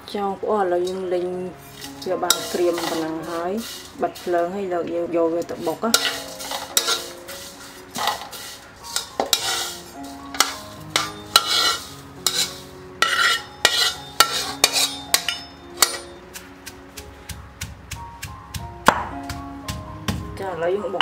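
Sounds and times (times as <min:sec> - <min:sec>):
soft background music: 0:00.0 - 0:21.0
metal spatula scraping a wok: 0:01.6 - 0:04.7, 0:05.4 - 0:16.5
pestle pounding in stone mortar: 0:13.1 - 0:20.3.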